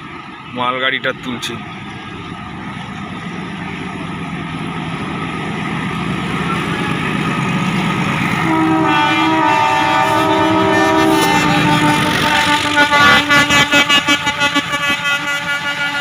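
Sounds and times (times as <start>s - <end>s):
locomotive engine and rail noise: 0.0s - 16.0s
locomotive horn blast: 8.2s - 16.0s.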